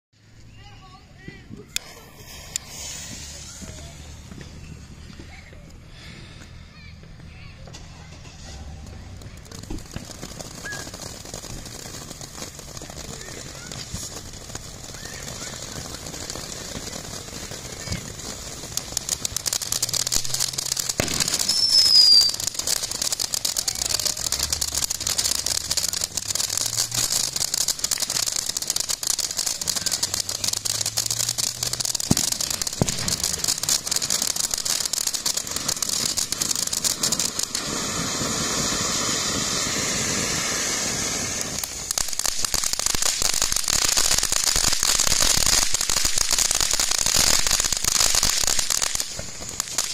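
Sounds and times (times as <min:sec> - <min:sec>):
firework fountain hissing and crackling: 0:00.2 - 0:49.9
falling whistle: 0:10.6 - 0:11.0, 0:21.4 - 0:22.4.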